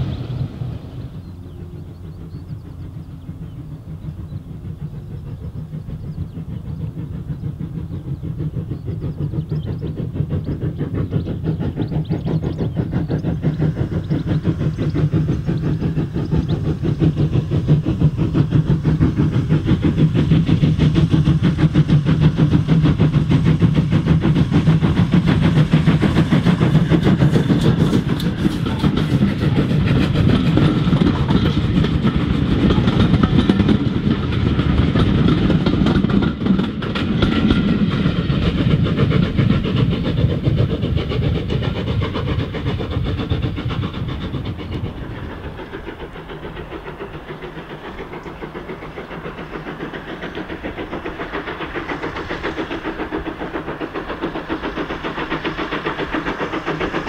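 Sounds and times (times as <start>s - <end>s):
steam locomotive exhaust beats: 0.0s - 57.0s
train wheels clattering over rail joints: 0.0s - 57.0s.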